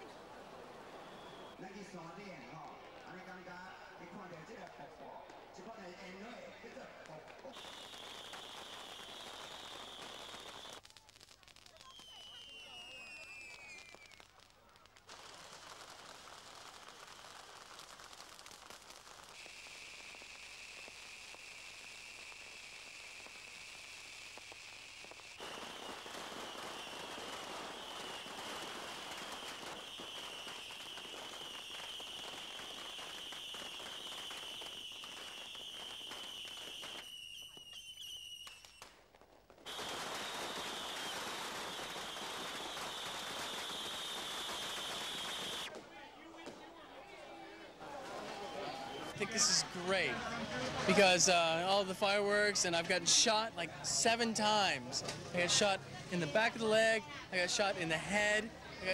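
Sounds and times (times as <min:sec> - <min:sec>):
fireworks crackling: 0:00.0 - 0:58.9
high whistle: 0:00.9 - 0:01.6, 0:07.6 - 0:10.8, 0:11.8 - 0:14.2, 0:19.4 - 0:38.8, 0:39.7 - 0:45.7.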